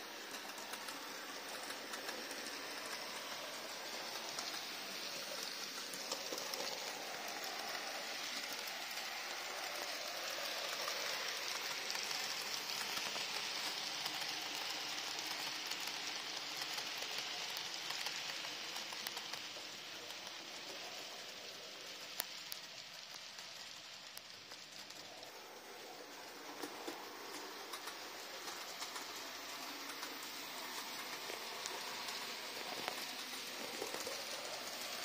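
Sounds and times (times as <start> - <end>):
model train motor whirring on rails: 0.0 - 35.0.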